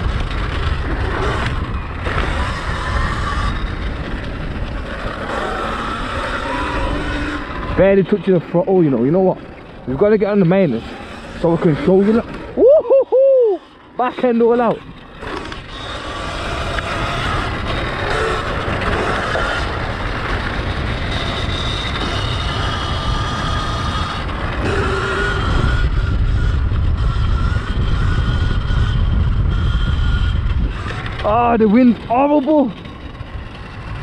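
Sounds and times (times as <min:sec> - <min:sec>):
electric dirt bike motor whine: 0:00.0 - 0:34.0
wind buffeting microphone: 0:00.0 - 0:34.0.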